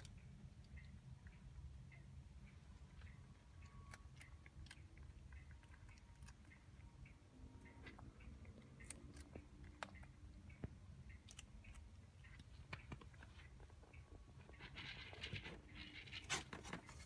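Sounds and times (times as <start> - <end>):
cat chewing dry food: 2.7 - 7.1, 7.8 - 16.6.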